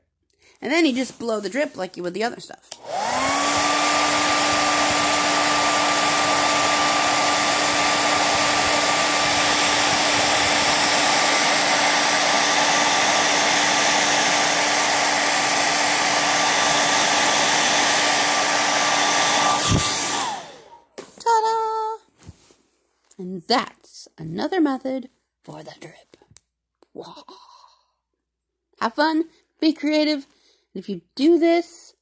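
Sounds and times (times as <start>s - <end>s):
hair dryer running: 2.7s - 20.9s.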